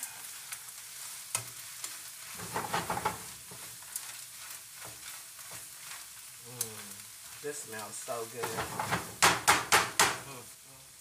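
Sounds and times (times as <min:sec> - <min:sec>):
food sizzling in a frying pan: 0:00.0 - 0:11.0
spatula scraping a pan: 0:00.3 - 0:09.9.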